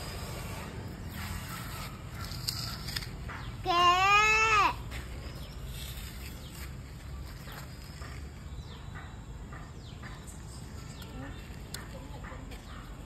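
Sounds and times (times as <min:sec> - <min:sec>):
child's drawn-out call: 0:03.6 - 0:04.8.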